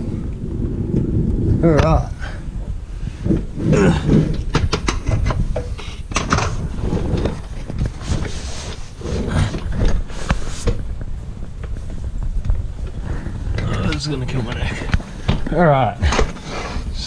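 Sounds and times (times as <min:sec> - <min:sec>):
low rumble: 0:00.0 - 0:16.1
knocks and clunks: 0:03.2 - 0:08.2.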